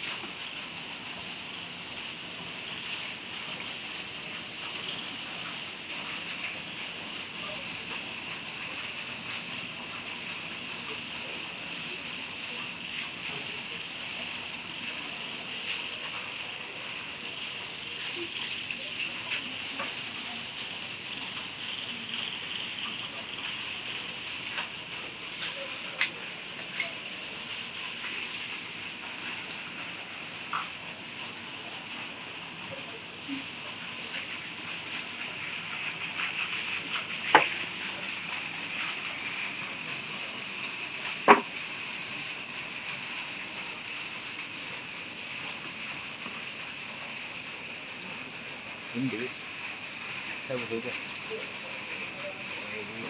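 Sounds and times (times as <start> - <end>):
night insects chirring: 0.0 - 53.0.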